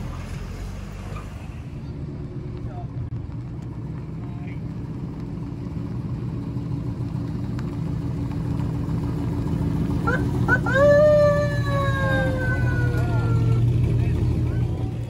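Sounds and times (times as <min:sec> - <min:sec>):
truck engines passing: 0:00.0 - 0:15.0
siren chirps and wail: 0:10.1 - 0:13.7.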